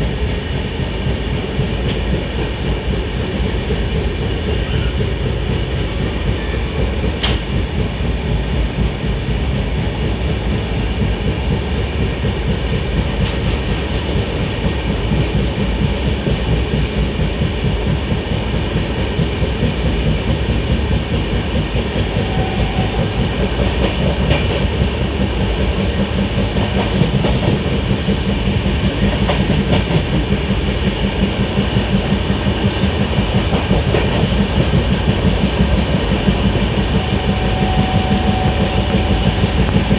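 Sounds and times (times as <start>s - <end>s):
train wheels rumbling on rails: 0.0s - 39.9s.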